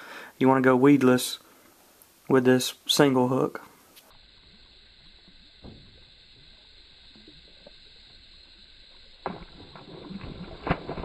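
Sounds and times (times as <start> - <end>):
fish splashing at surface: 9.2 - 11.0.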